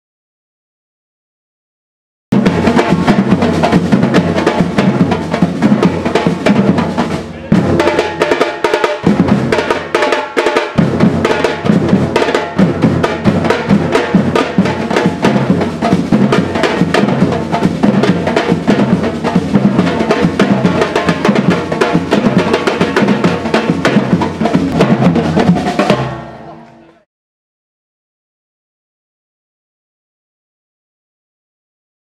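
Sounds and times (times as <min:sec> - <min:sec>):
percussion group drumming: 0:02.3 - 0:26.8.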